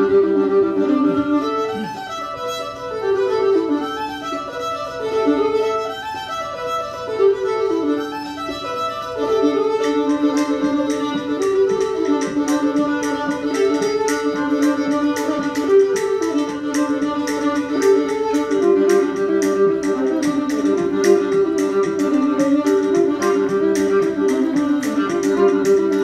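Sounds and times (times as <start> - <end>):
fiddle playing: 0.0 - 26.0
sharp rhythmic clicks: 8.2 - 26.0.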